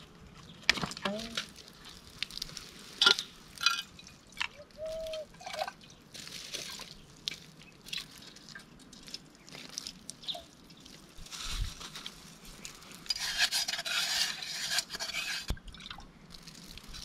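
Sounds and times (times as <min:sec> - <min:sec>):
water dripping into a pot: 0:01.0 - 0:11.3.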